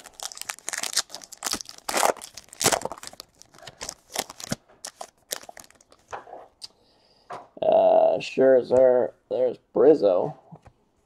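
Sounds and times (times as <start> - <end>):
cards rustling and snapping: 0.0 - 6.2.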